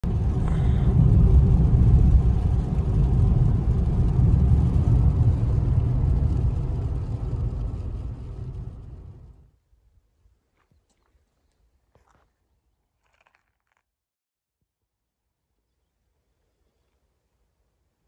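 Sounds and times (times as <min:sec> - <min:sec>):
car engine and tyre noise: 0:00.0 - 0:09.5.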